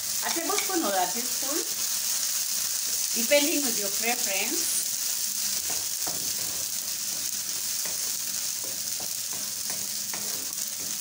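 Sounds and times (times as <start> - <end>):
sauce sizzling in a pan: 0.0 - 11.0
wooden spatula scraping a pan: 5.5 - 11.0.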